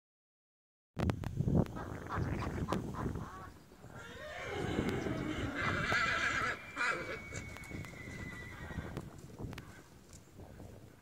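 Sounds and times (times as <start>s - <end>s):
horse whinnying: 4.0s - 9.0s.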